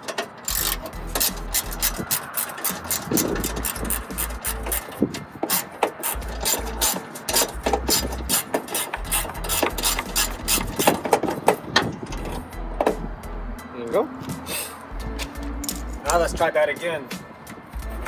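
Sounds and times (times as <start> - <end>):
ratchet wrench clicking: 0.0 - 12.4.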